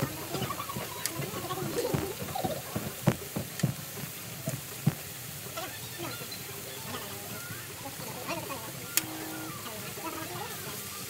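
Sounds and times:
meat sizzling on a griddle: 0.0 - 11.0.

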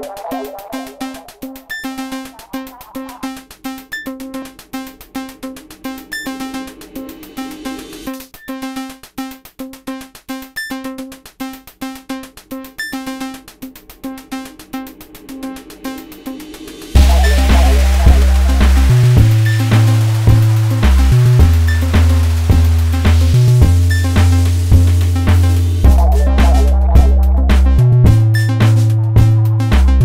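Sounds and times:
synthesizer line: 0.0 - 7.1, 16.8 - 29.9
drum machine beat: 0.0 - 30.0.

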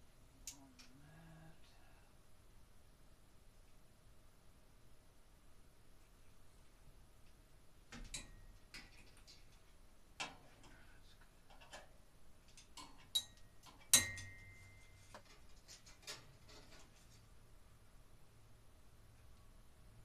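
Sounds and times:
clicks and knocks on metal fixture: 12.6 - 14.6.

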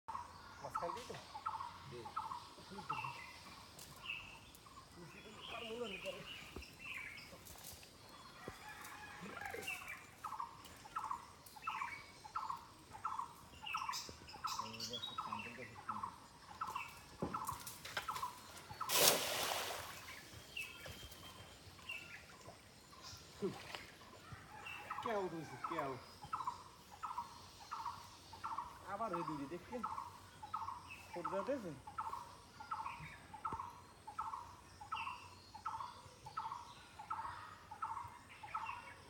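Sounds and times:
cast net splashing into water: 18.0 - 20.4.

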